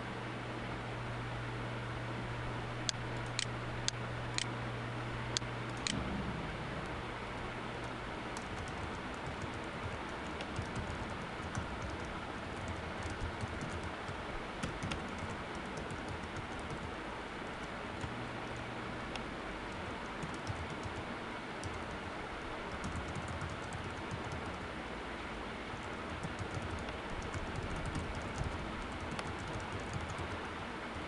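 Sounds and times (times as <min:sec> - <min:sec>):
low hum: 0:00.0 - 0:20.7.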